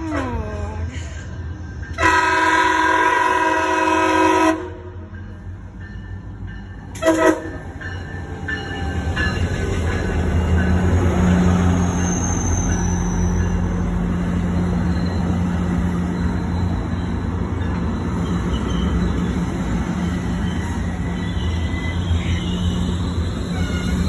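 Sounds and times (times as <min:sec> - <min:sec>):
train wheels rumbling on rail: 0:00.0 - 0:24.0
wheels squealing: 0:11.5 - 0:14.0.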